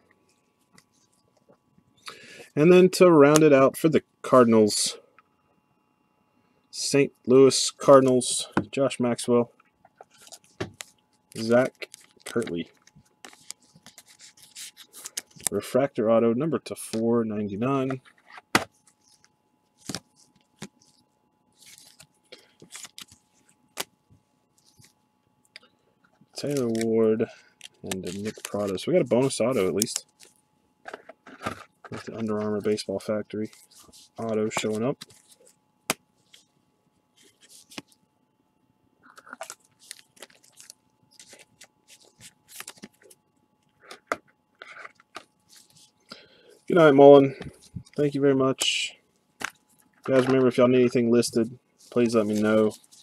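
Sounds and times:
cards rustling and sliding: 10.0 - 15.6, 17.9 - 23.9, 24.6 - 25.0, 26.2 - 35.6, 37.2 - 38.0, 39.1 - 43.2, 43.8 - 46.0, 46.7 - 53.0
wrapper crinkling and rustling: 18.8 - 23.8, 27.6 - 30.4, 39.1 - 43.2, 49.4 - 53.0
cards clicking: 27.6 - 30.3.

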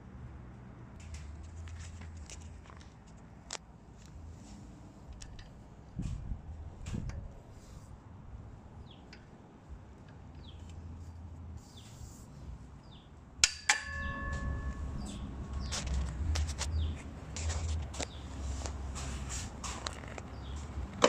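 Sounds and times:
metal tubes clanking: 13.4 - 17.7
metal frame rattling and clicking: 13.4 - 18.2.

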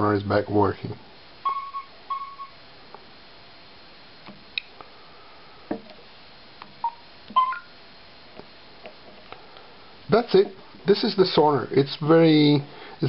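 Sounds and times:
short electronic beeps: 6.8 - 7.7.

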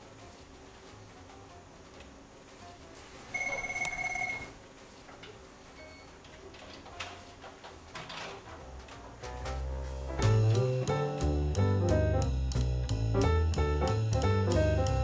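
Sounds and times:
card reader beeping: 3.3 - 4.6.

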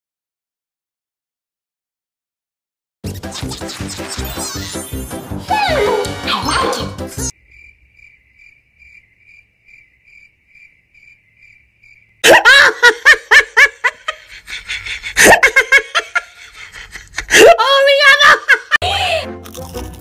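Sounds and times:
crickets chirping: 7.3 - 12.2
loud laughter bursts: 12.2 - 19.2.

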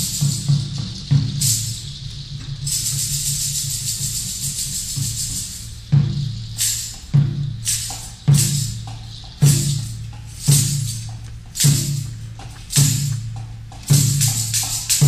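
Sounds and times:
high jingling shimmer: 0.0 - 13.3
hand drumming on barrel drum: 5.1 - 15.0.

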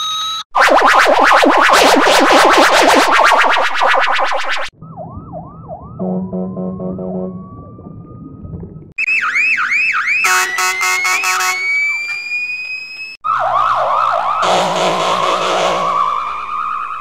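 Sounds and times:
police siren: 4.7 - 17.0.

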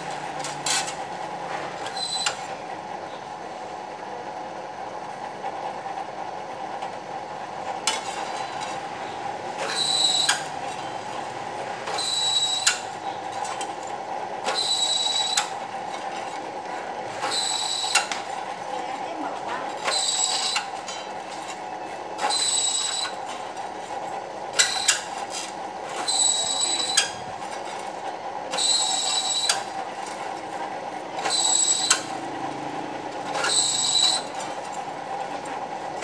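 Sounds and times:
drill press running: 0.0 - 36.0
drill bit squealing through metal: 1.9 - 2.4, 9.6 - 10.5, 11.9 - 12.9, 14.5 - 15.5, 17.2 - 18.1, 19.9 - 20.7, 22.3 - 23.2, 26.0 - 27.2, 28.5 - 29.7, 31.2 - 32.1, 33.3 - 34.4.

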